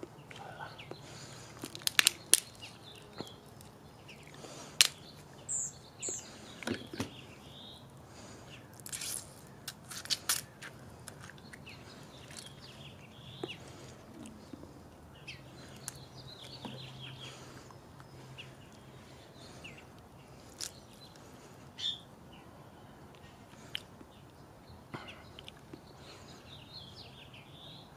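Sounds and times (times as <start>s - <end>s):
birds chirping: 0.0s - 27.9s
crab shell crackling: 1.1s - 5.1s, 8.7s - 11.7s.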